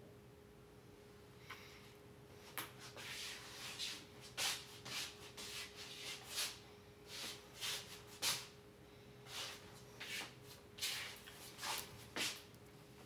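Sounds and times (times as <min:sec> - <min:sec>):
faint steady hum: 0:00.0 - 0:13.0
shuffling footsteps: 0:09.3 - 0:12.5.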